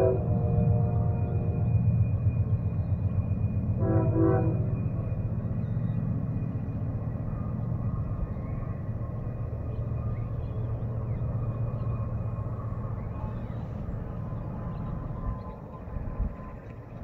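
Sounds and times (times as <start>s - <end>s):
locomotive air horn blasts: 0.0s - 1.6s, 3.8s - 4.8s
freight train rumbling past: 0.0s - 17.0s.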